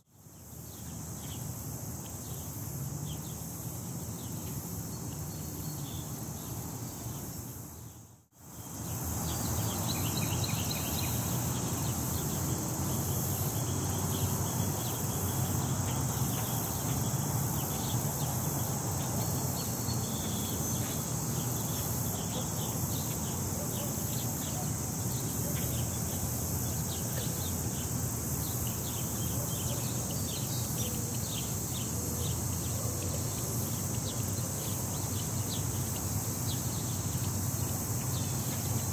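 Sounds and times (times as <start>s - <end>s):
steady high hiss: 0.0s - 38.9s.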